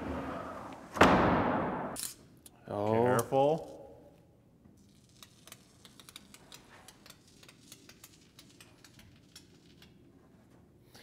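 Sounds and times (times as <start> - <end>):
faint irregular ticks and clicks: 4.8 - 10.0.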